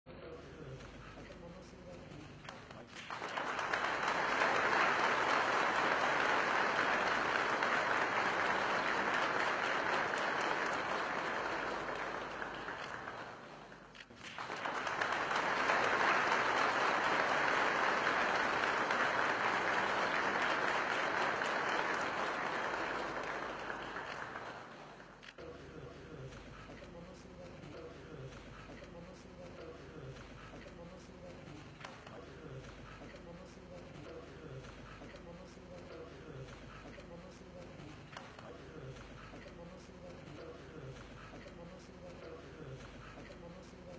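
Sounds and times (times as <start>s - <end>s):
crowd applauding: 2.4s - 25.3s.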